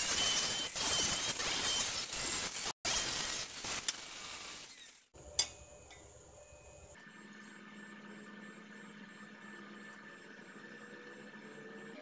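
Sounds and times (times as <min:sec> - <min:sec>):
angle grinder grinding steel: 0:00.0 - 0:05.2.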